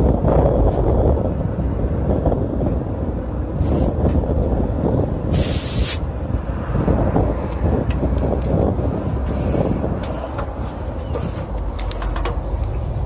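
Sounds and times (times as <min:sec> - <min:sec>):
steady low rumble: 0:00.0 - 0:13.0
hiss of escaping gas: 0:05.3 - 0:06.1.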